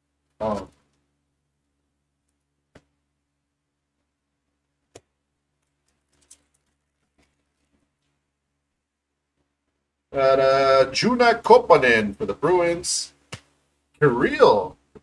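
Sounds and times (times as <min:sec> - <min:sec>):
trading cards clicking and crinkling: 0:04.9 - 0:08.2.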